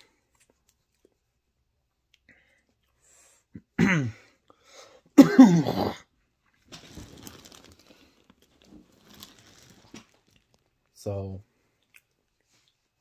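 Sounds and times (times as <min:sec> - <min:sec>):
man coughing: 0:03.6 - 0:04.3, 0:05.2 - 0:06.1
faint rustling: 0:06.6 - 0:11.0.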